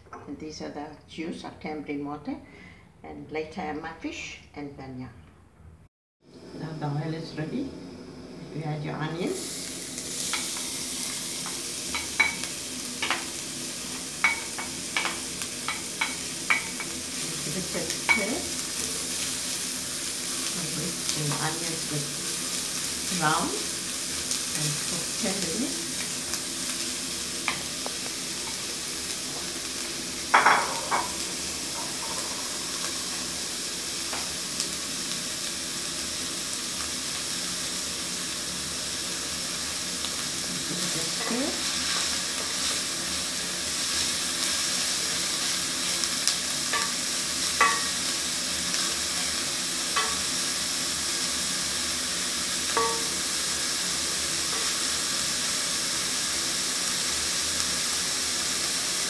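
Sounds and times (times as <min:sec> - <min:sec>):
onions sizzling in hot oil: 0:06.3 - 0:59.0
wooden spoon knocking on pot: 0:52.8 - 0:53.1.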